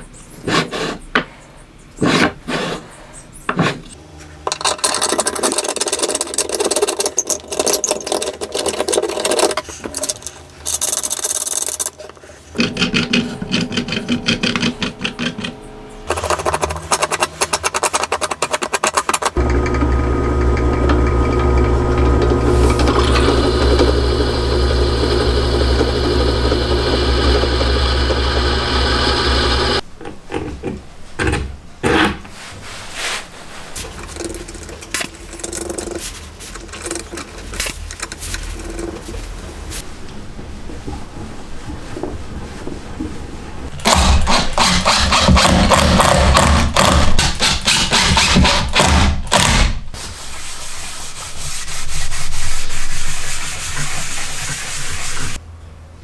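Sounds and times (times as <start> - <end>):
drill press drilling metal: 19.4 - 29.8.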